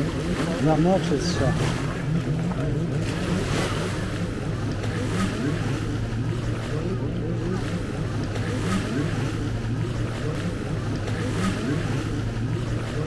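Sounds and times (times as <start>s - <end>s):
low engine drone: 0.0s - 13.0s
murmur of distant voices: 0.0s - 13.0s
surf: 0.0s - 13.0s.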